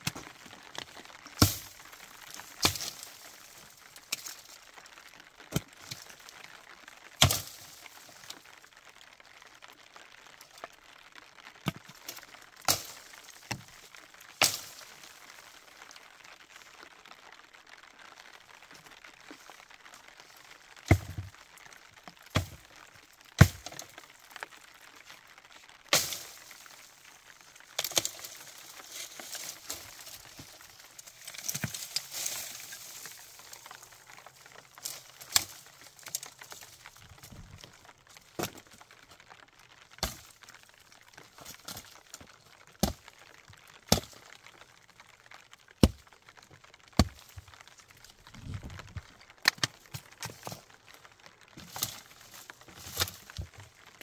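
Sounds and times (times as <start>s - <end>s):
sharp cracks and knocks: 0.0s - 4.6s, 7.1s - 8.5s, 11.5s - 15.9s, 20.8s - 25.1s, 25.9s - 54.0s
crackling and rustling: 0.0s - 54.0s.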